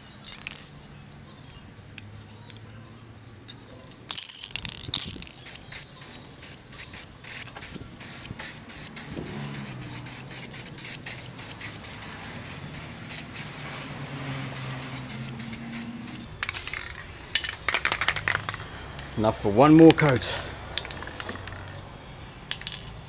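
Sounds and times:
spray paint hissing: 4.1s - 16.8s.

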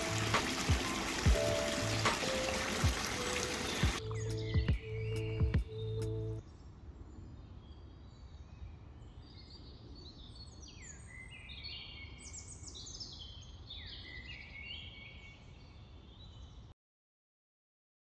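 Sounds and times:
birds chirping and whistling: 0.0s - 6.4s.

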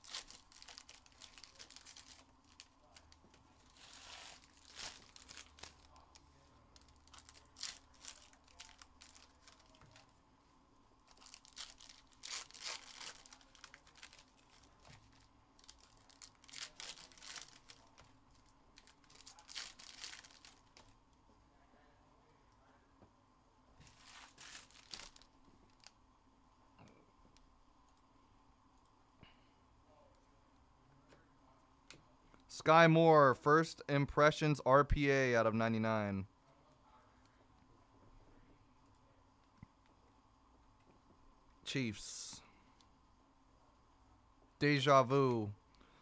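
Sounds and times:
card pack wrappers tearing and crinkling: 0.0s - 10.1s, 11.1s - 18.0s, 18.8s - 20.9s, 23.8s - 25.9s.

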